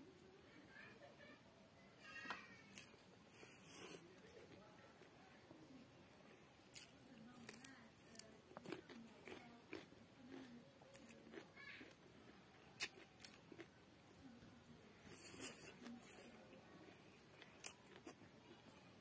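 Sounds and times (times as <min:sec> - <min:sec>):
chewing: 0:06.7 - 0:14.3, 0:15.0 - 0:18.8
fingers picking at food: 0:15.1 - 0:16.4.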